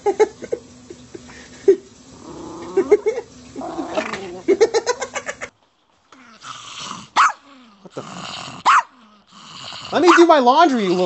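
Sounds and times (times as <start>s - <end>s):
small dog growling: 2.1s - 4.6s, 6.2s - 11.0s
dog yelping: 7.2s - 7.4s, 8.6s - 9.0s.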